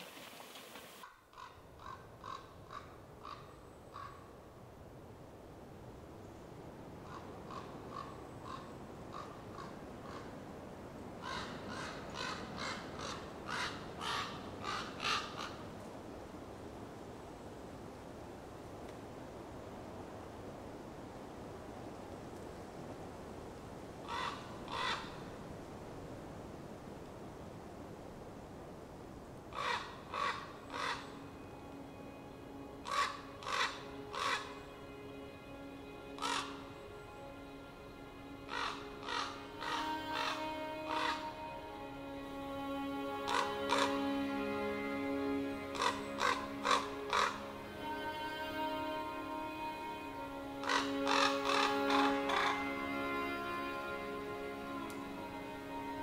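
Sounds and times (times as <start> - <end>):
crow harsh caws: 1.0 - 4.2, 7.0 - 10.3, 11.2 - 15.6, 24.1 - 25.2, 29.5 - 31.1, 32.8 - 34.5, 36.2 - 36.6, 38.5 - 41.3, 45.7 - 47.4, 50.6 - 52.7.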